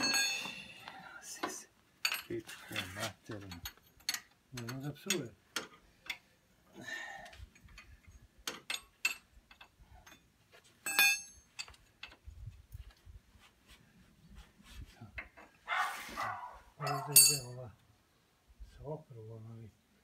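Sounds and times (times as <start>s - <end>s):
ringing metal clink: 0.0s - 0.9s, 10.8s - 11.8s, 16.8s - 17.6s
wrench and metal parts clicking: 7.6s - 12.2s.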